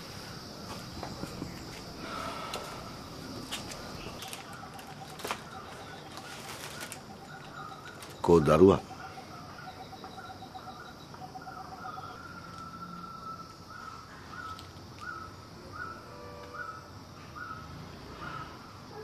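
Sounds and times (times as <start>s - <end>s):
birds chirping: 0.0s - 17.7s
steady high hiss: 0.0s - 18.8s
bird trilling: 2.0s - 16.0s.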